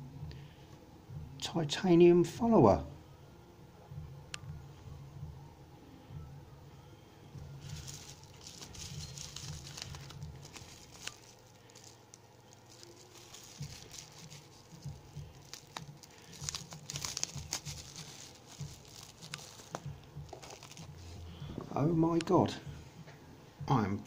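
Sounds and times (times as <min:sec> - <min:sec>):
bubble wrap crinkling: 0:07.5 - 0:21.6
masking tape peeling: 0:07.6 - 0:21.2.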